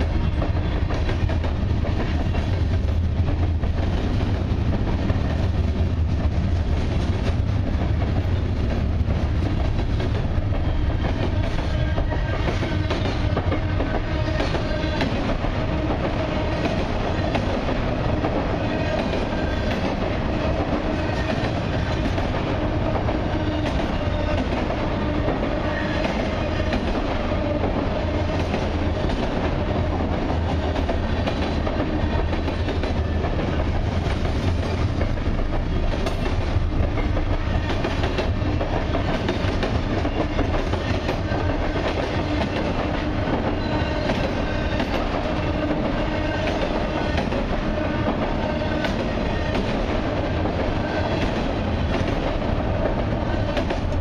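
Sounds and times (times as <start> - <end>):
freight cars rumbling: 0.0 - 54.0.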